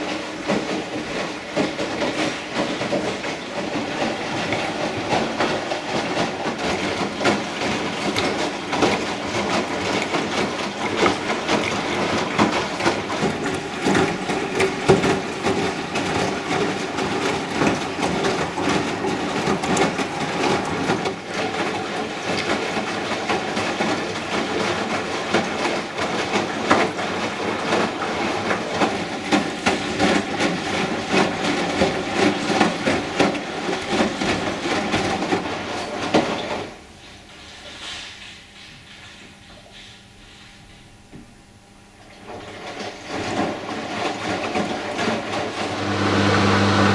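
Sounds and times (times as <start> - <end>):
washing machine drum tumbling: 0.0 - 36.7, 42.2 - 46.9
steady clatter: 0.0 - 36.8
water sloshing: 2.1 - 23.3.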